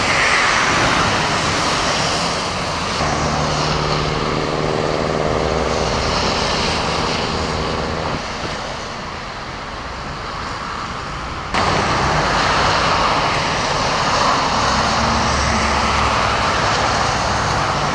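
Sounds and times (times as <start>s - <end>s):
tyres hissing through water: 0.0s - 9.3s
car engines humming: 0.0s - 17.9s.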